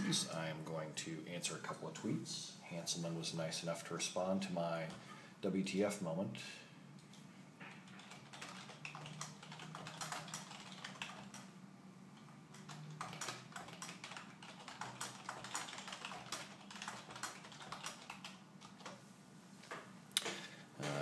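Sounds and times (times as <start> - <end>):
computer keyboard typing: 7.7 - 11.5, 12.2 - 19.0.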